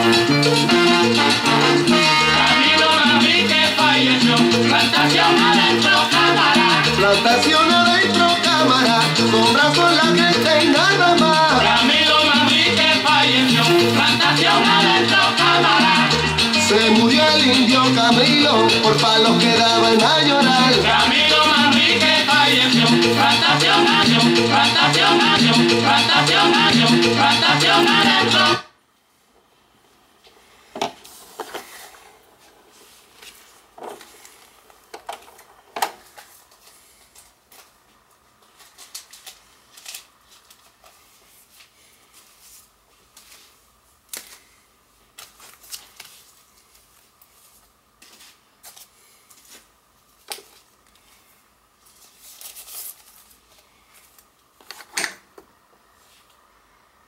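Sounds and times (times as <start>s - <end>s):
faint steady hum: 28.4s - 57.0s.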